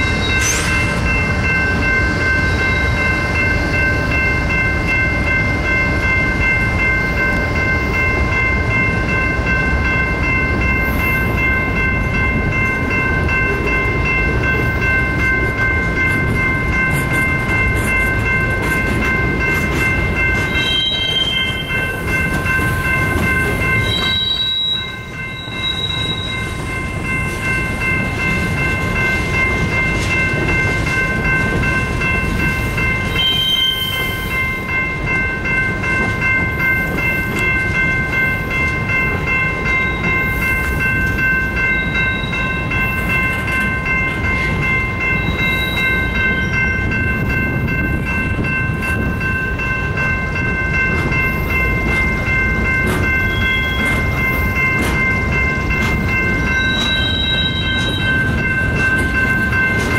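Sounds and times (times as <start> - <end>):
wheels rumbling on rail: 0.0 - 59.9
high-pitched held tones: 36.6 - 59.9.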